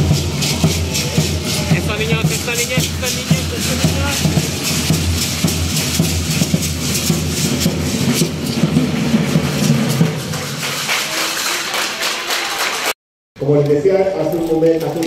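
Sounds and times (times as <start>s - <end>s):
large drum beating: 0.0s - 10.9s
hand rattles shaking: 0.3s - 8.7s.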